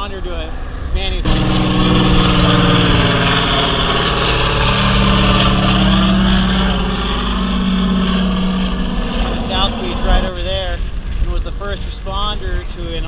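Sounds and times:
motor engine humming: 1.2 - 11.2.

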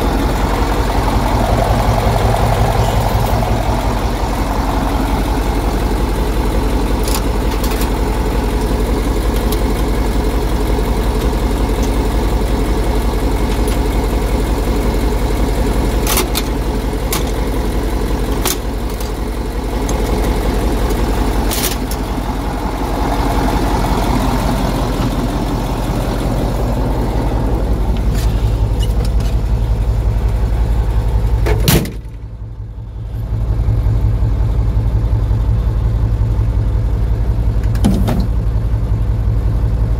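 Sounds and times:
truck engine idling: 0.0 - 39.9.

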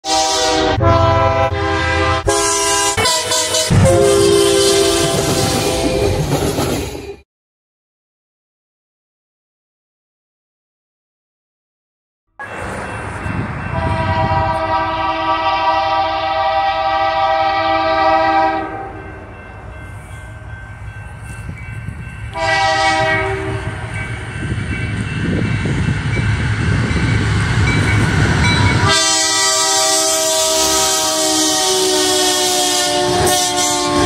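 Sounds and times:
locomotive air horn: 0.0 - 6.3, 13.7 - 19.1, 22.3 - 24.0, 28.7 - 34.0
train engines rumbling: 0.1 - 7.2, 12.4 - 34.0.

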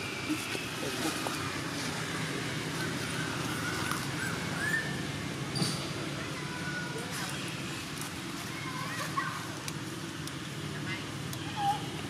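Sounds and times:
outdoor background noise: 0.0 - 12.0.

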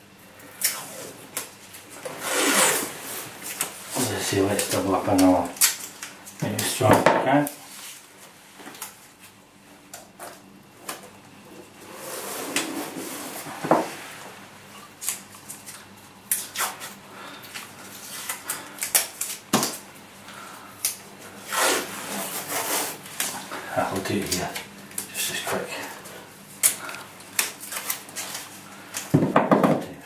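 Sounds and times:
paper and tape rustling: 26.6 - 28.6.

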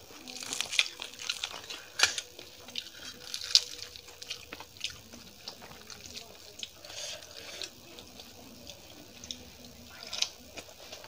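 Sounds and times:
crisp fried bread crunching: 0.0 - 11.0.

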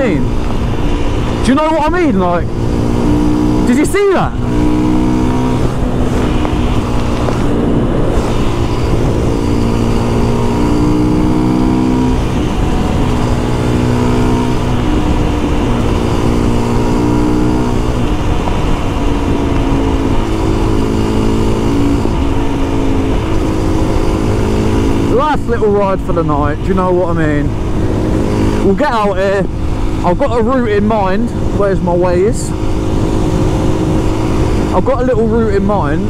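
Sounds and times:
motorcycle engine running: 0.0 - 36.0
steady rushing noise: 0.0 - 36.0.

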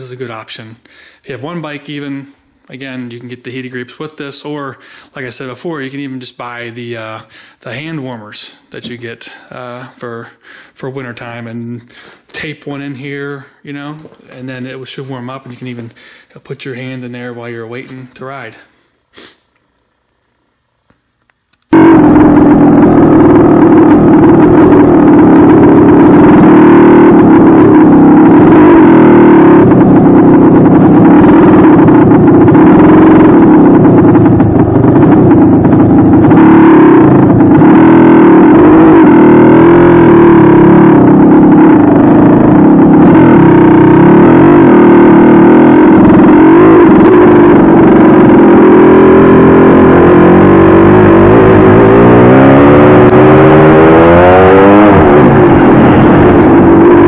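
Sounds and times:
dirt bike engine running: 21.7 - 57.0.

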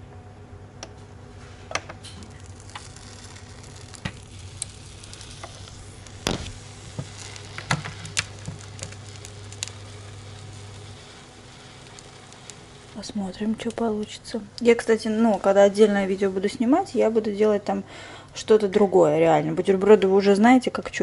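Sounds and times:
steady low hum: 0.0 - 21.0
sandwich sizzling and crackling: 1.3 - 16.5.

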